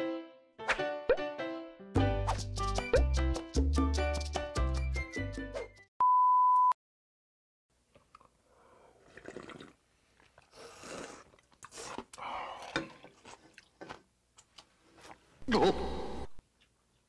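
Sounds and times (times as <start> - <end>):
slurping noodles: 8.9 - 13.7.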